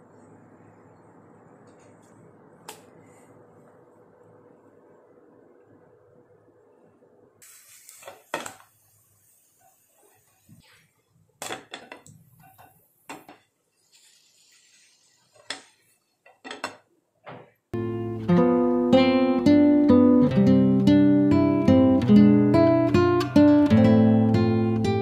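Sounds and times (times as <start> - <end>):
dishes and utensils clinking: 16.3 - 16.8.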